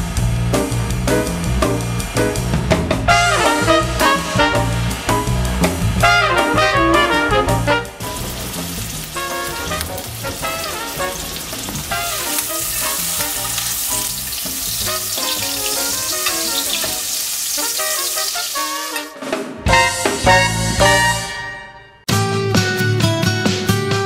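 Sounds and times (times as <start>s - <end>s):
meat sizzling in a pan: 8.0s - 19.1s.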